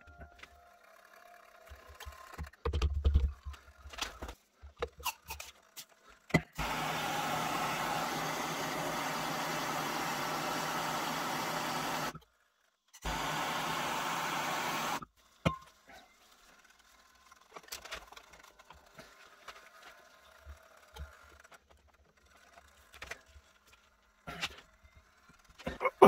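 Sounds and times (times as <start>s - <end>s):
blowtorch hissing: 6.6s - 12.2s, 13.0s - 15.0s.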